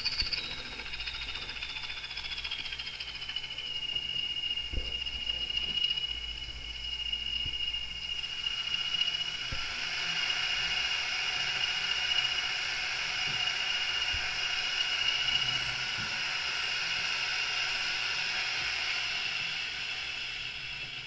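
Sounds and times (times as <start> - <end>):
model locomotive whirring: 0.0 - 21.0.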